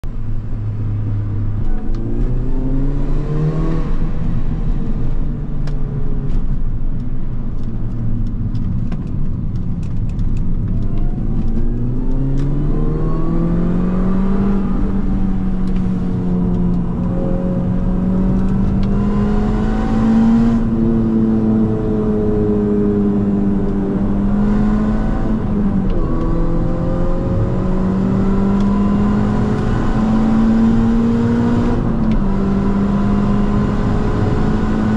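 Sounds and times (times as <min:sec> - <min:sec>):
road and wind noise: 0:00.0 - 0:34.9
car engine accelerating hard: 0:07.6 - 0:34.9.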